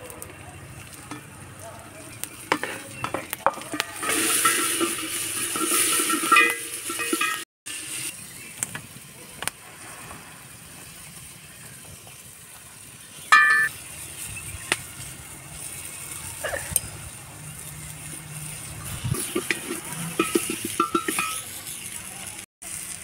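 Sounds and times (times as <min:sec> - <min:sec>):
faint sizzle: 0:00.0 - 0:23.0
wooden spoon scraping a pot: 0:02.5 - 0:07.4, 0:18.2 - 0:21.8.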